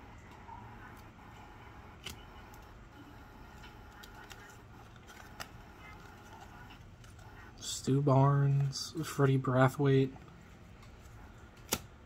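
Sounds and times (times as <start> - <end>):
low room hum: 0.0 - 12.0
cards clicking and tapping: 10.7 - 11.9.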